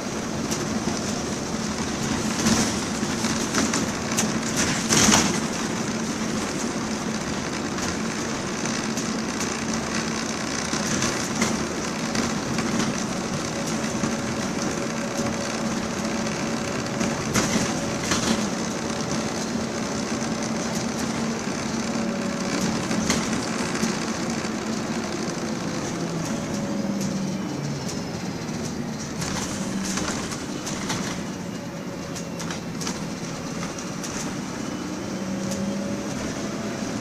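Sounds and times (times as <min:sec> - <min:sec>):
diesel bus engine running: 0:00.0 - 0:37.0
road noise: 0:00.0 - 0:37.0.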